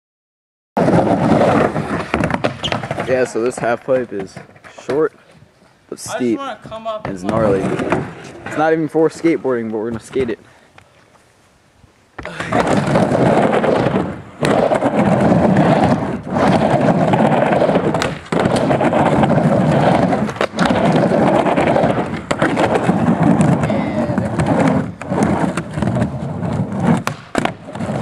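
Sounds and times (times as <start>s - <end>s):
skateboard clacks: 0.8s - 5.3s, 12.2s - 28.0s
skateboard wheels rumbling on ramp: 0.8s - 5.3s, 6.0s - 10.4s, 12.2s - 28.0s.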